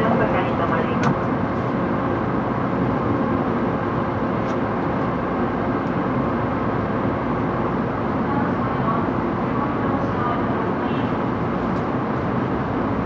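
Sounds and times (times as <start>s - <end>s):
train car interior hum: 0.0s - 13.0s.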